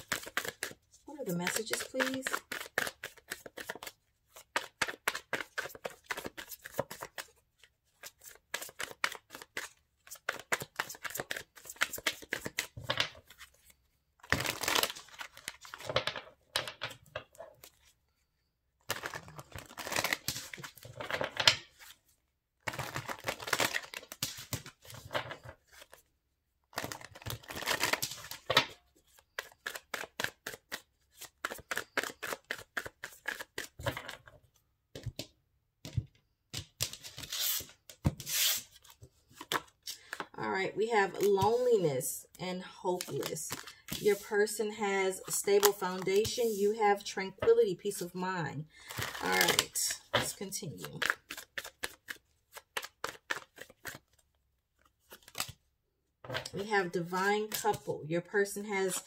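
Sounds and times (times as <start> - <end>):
cards being shuffled: 0.0 - 17.9, 18.9 - 22.0, 22.6 - 26.0, 26.7 - 34.4, 35.9 - 40.3, 43.0 - 44.6, 45.2 - 47.0, 48.9 - 55.6.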